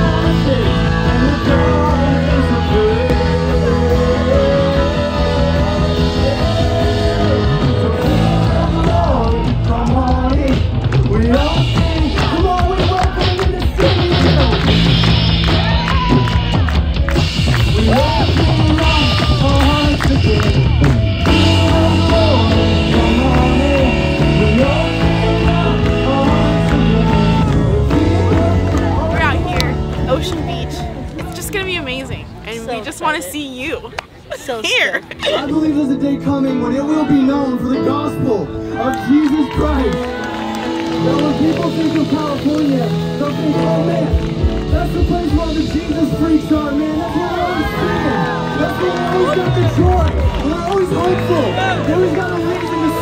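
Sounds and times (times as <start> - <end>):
person singing long held notes: 0.0 - 14.6, 17.7 - 29.2
rock band backing: 0.0 - 53.0.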